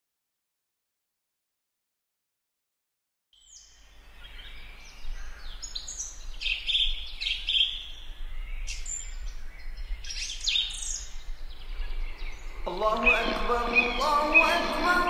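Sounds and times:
small birds chirping: 0:03.4 - 0:15.0.

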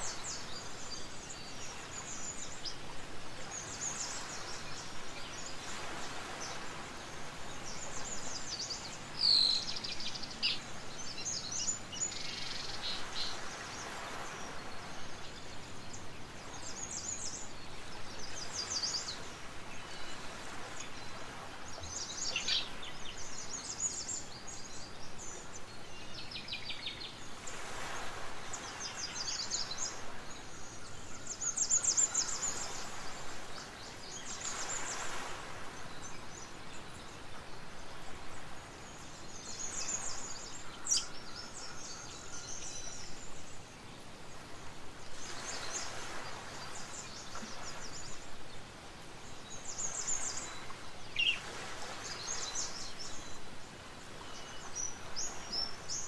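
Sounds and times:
small birds chirping and trilling: 0:00.0 - 0:56.0
steady background hiss: 0:00.0 - 0:56.0.

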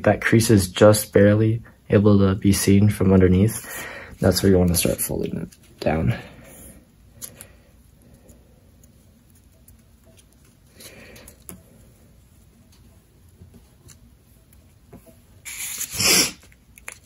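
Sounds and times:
paper rustling and scratching: 0:08.1 - 0:11.6, 0:12.5 - 0:17.0.

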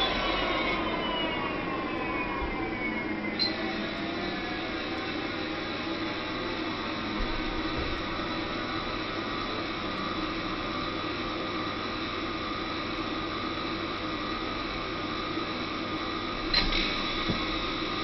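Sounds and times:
electric motor whirring and whining: 0:00.0 - 0:09.9.

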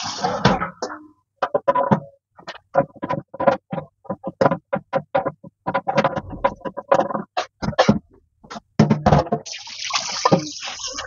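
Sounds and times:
tap water running: 0:09.4 - 0:11.0.

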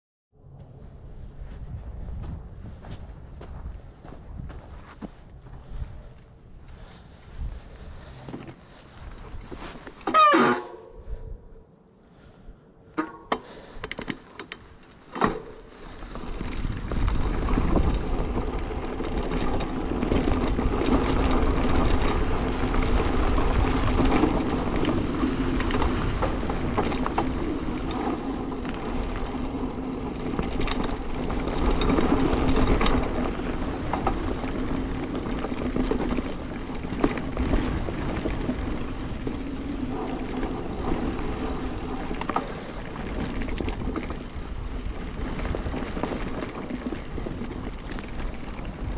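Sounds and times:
wind buffeting microphone: 0:00.8 - 0:08.3, 0:15.7 - 0:48.9
tyres rumbling on dirt: 0:15.1 - 0:48.9.

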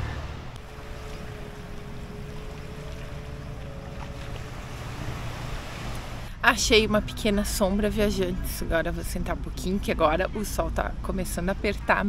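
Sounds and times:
small waves at shoreline: 0:00.0 - 0:06.4
wind rumble: 0:00.0 - 0:11.6
distant motorboat engine drone: 0:00.0 - 0:12.0.

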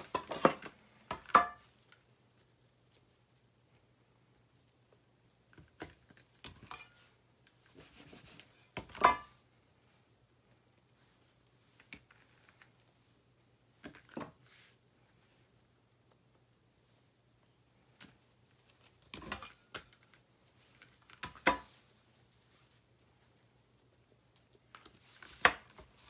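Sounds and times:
hands rubbing dough: 0:07.0 - 0:08.8, 0:09.4 - 0:26.0.

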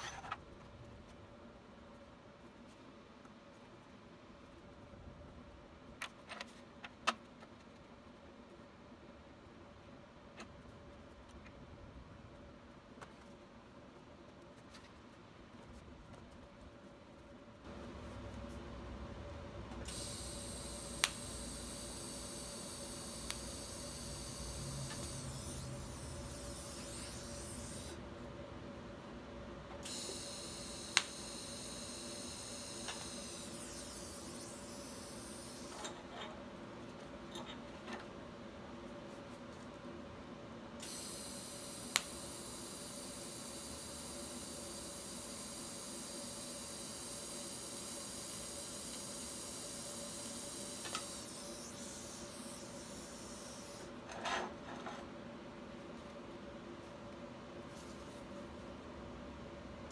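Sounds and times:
welder click: 0:19.8 - 0:28.0, 0:29.8 - 0:31.5, 0:41.8 - 0:42.3, 0:50.7 - 0:53.9
welding arc hissing: 0:19.8 - 0:28.0, 0:29.8 - 0:35.8, 0:40.8 - 0:53.9.

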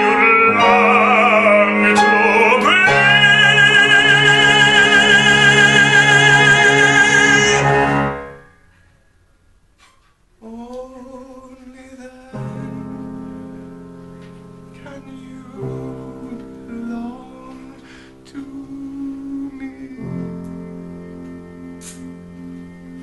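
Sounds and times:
man singing with vibrato: 0:00.0 - 0:08.5, 0:10.4 - 0:12.8, 0:14.8 - 0:23.0
instrumental accompaniment chords: 0:00.0 - 0:08.6.

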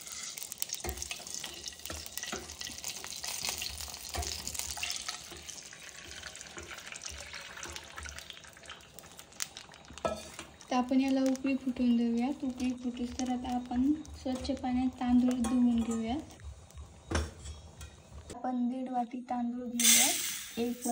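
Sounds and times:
water splashing into hot oil: 0:00.0 - 0:14.6
oil crackling: 0:00.0 - 0:17.0.

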